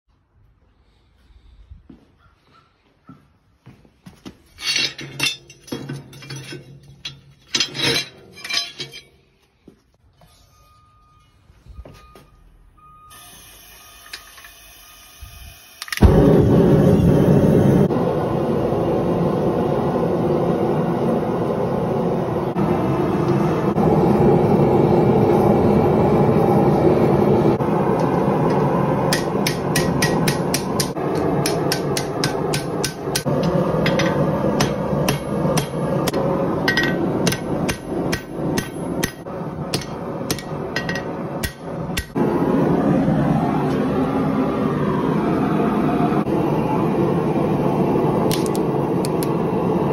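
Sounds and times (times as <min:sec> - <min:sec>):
gas forge burner roaring: 0:04.6 - 0:09.8, 0:13.1 - 0:49.9
hammer striking steel on anvil: 0:28.0 - 0:42.2.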